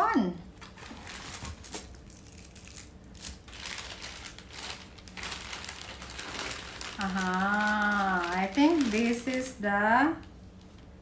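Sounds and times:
packaging crinkling and tearing: 0.5 - 9.6.

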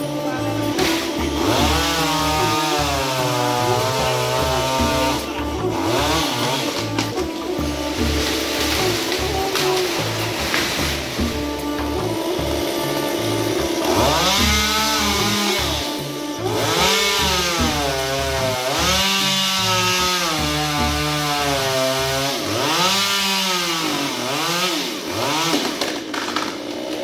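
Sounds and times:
chainsaw revving cutting branch: 0.0 - 27.0.

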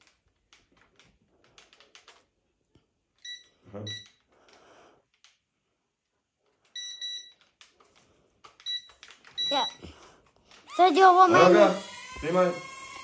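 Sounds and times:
short electronic beeps: 8.7 - 9.8.

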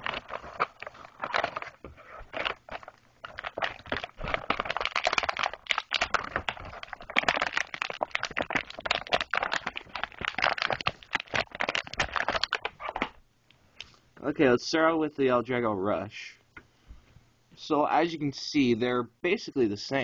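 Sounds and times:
plastic packaging crackling: 0.0 - 13.2.

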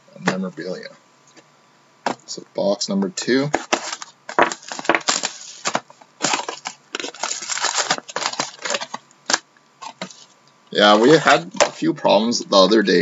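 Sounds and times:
plastic wrap crinkling and tearing: 3.6 - 10.3
foil packs rustling: 3.6 - 11.8.

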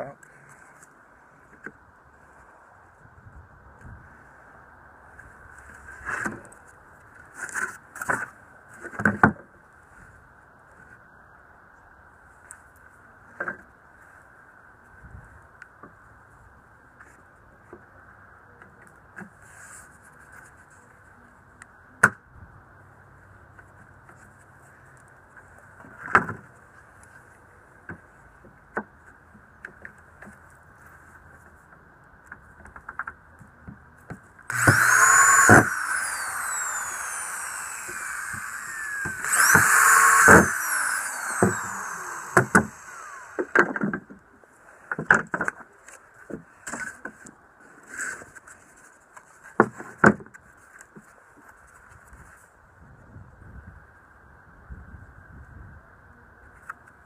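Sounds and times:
electric drill drilling into wood: 34.5 - 43.7
clamps and wood knocking: 34.5 - 43.8.

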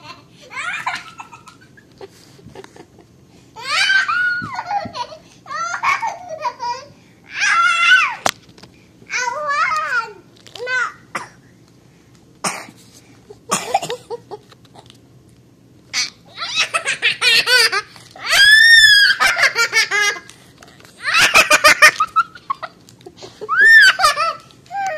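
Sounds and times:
girl laughing: 0.0 - 6.9, 16.0 - 20.3, 21.0 - 24.9
girl squealing: 3.6 - 4.8, 7.3 - 8.2, 16.0 - 16.8, 18.2 - 19.4, 23.5 - 24.9.

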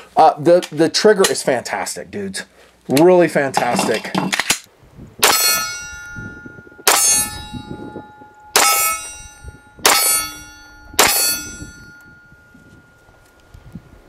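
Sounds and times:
pistol shots: 5.2 - 5.7
metallic ringing: 5.2 - 14.0.

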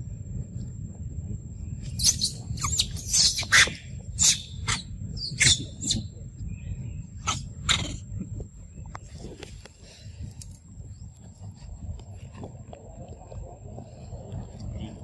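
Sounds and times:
macaques squealing: 2.0 - 6.1, 7.2 - 8.0.

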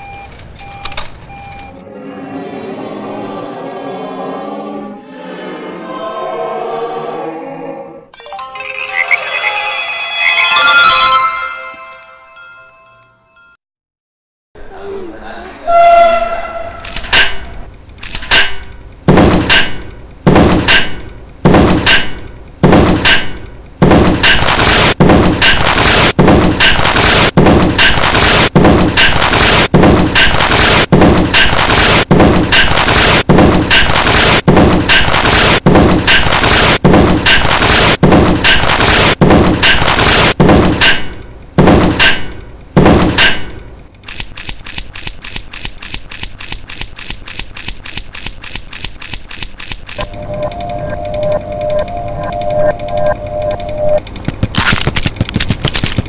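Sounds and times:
heavy slamming impacts: 18.4 - 43.6.

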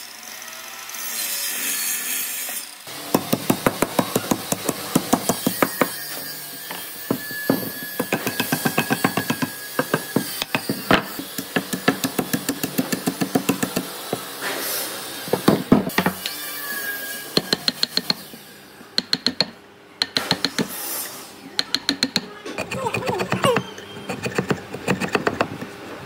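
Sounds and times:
claw hammer knocking wood: 3.1 - 14.3, 19.0 - 20.8, 21.6 - 25.7.

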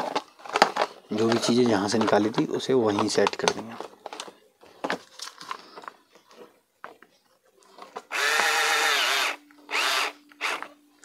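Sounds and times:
plastic parts clicking: 0.0 - 6.0
small drill whirring: 8.1 - 10.7.

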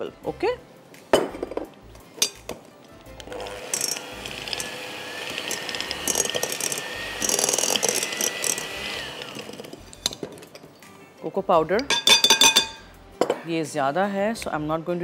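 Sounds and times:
electric hand mixer whirring: 3.2 - 9.9.

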